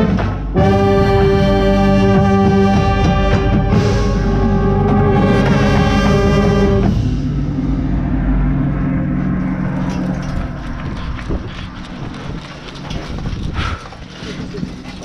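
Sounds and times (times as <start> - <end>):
brass chord: 0.0 - 9.4
clatter: 8.7 - 15.0.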